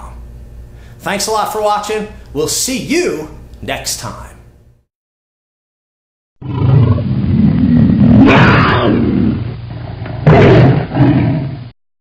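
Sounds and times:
cat growling and roaring: 6.4s - 11.7s.

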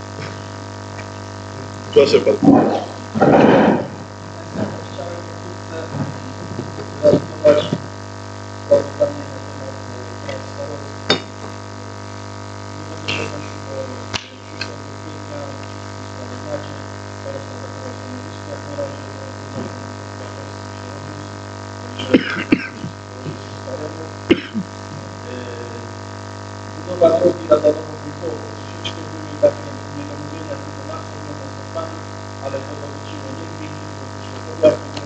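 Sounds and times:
electrical mains hum: 0.0s - 35.0s
faint indistinct voices: 1.6s - 7.9s, 12.8s - 25.9s.

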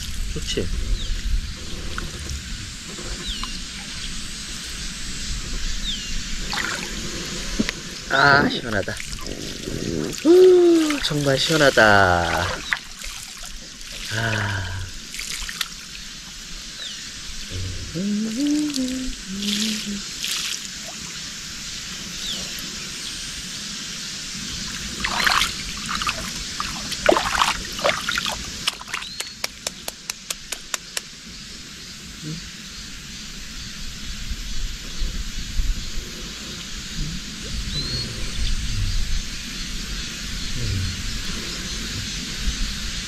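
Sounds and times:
water trickling and splashing: 0.0s - 0.6s, 6.3s - 22.8s, 24.3s - 30.5s
water scooped by hand: 6.4s - 7.3s, 9.0s - 16.0s, 17.6s - 21.1s, 24.7s - 29.4s
sharp ticks: 29.0s - 31.1s.

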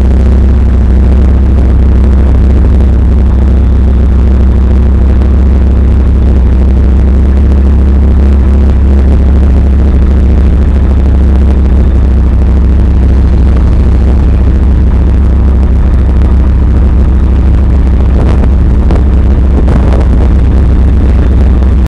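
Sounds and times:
heavy vehicle engine rumbling: 0.0s - 21.9s
rattles: 8.2s - 21.8s.

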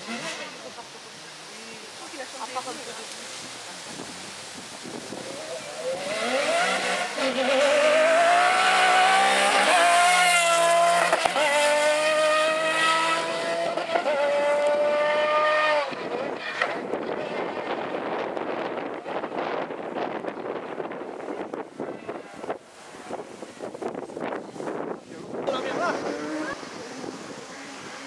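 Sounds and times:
rough noisy rush: 1.7s - 28.0s
rally car engine revving: 5.1s - 20.5s, 25.4s - 28.0s.

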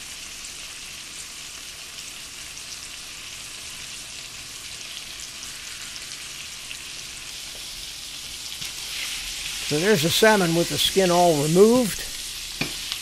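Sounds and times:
fish sizzling in butter: 0.0s - 13.0s.

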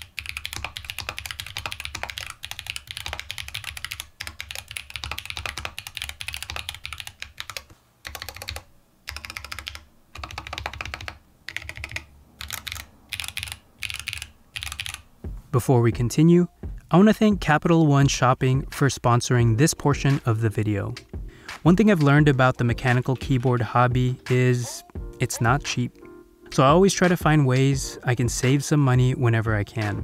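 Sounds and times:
mechanical keyboard typing: 0.0s - 15.0s.

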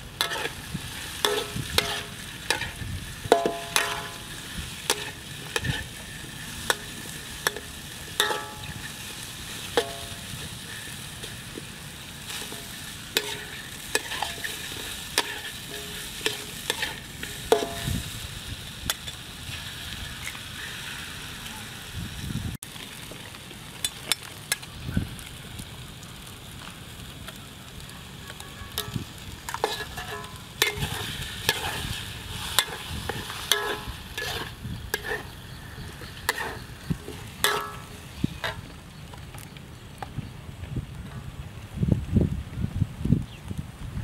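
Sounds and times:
frying sizzle: 0.0s - 44.0s
metal spatula scraping a wok: 0.2s - 18.2s, 28.7s - 38.6s.

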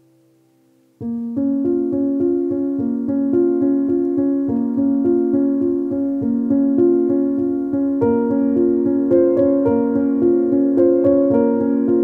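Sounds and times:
piano music with repeated notes: 0.0s - 12.0s.

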